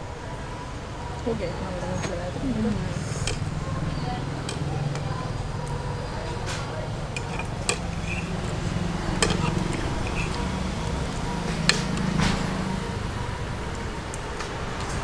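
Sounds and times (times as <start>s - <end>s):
eating noises: 1.2s - 15.0s
forks clinking against plates: 2.9s - 12.6s.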